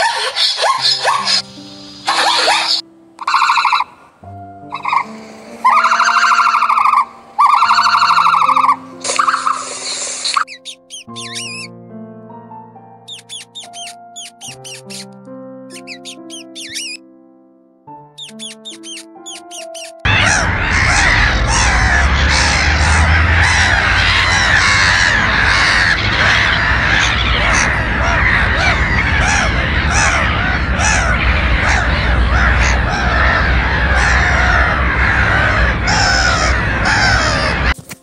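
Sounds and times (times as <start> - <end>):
gulls calling: 0.0 - 4.1, 4.7 - 11.7, 13.1 - 15.1, 15.7 - 17.0, 18.2 - 37.8
steady low rumble: 20.1 - 37.8.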